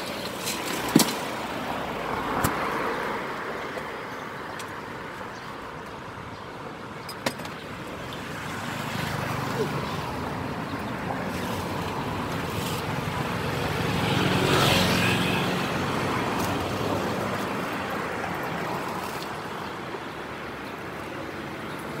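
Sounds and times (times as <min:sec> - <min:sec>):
street traffic: 0:00.0 - 0:22.0
vehicle passing close: 0:08.2 - 0:19.5.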